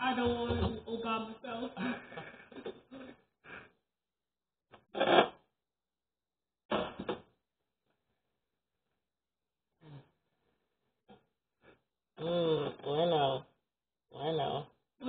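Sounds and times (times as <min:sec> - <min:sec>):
kitchen clatters and bumps: 0:00.1 - 0:01.0.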